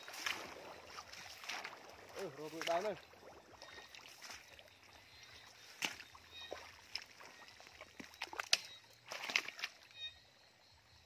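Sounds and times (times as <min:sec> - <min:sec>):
sharp splash: 0:00.0 - 0:09.8
river water lapping and splashing: 0:00.0 - 0:10.2.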